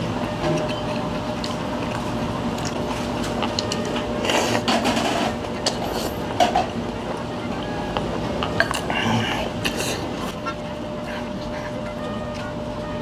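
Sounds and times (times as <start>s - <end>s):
background hum: 0.0s - 13.0s
noodles being slurped: 1.0s - 6.4s, 8.4s - 10.5s.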